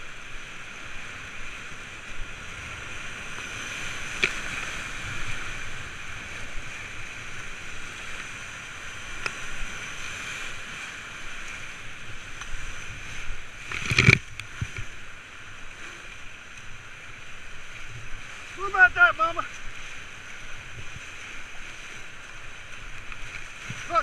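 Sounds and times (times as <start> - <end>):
whitewater rapid rushing: 0.0 - 24.0.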